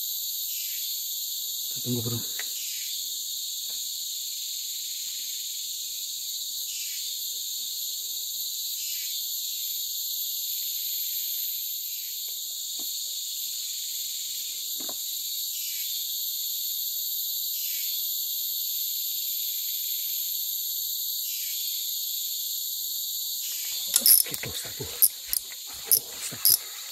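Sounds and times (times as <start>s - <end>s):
insects buzzing: 23.4s - 26.9s.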